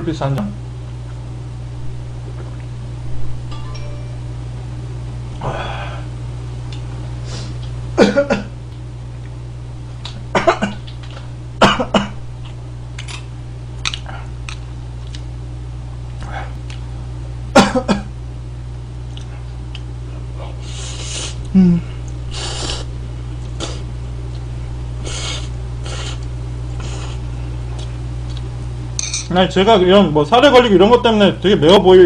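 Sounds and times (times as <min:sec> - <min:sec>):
steady low hum: 0:00.0 - 0:32.0
man coughing: 0:08.0 - 0:08.6, 0:10.3 - 0:10.8, 0:11.6 - 0:12.2, 0:17.5 - 0:18.1.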